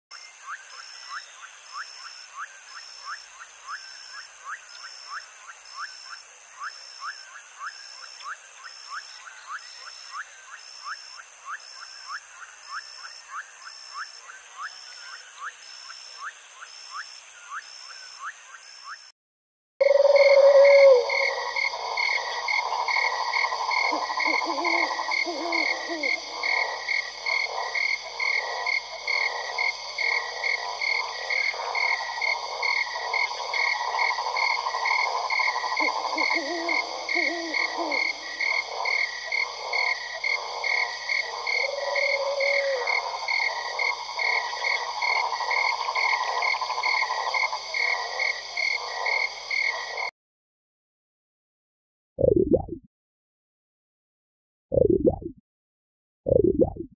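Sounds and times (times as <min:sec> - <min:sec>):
frog chorus trilling and croaking: 0:00.1 - 0:19.1, 0:19.8 - 0:50.1
deeper frog croaks: 0:19.8 - 0:50.1.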